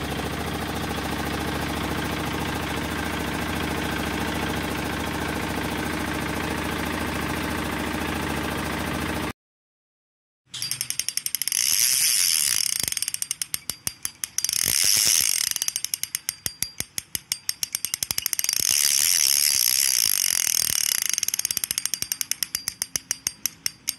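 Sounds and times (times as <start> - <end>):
fishing line zinging: 10.6 - 23.9
fishing reel drag clicking: 10.6 - 23.9.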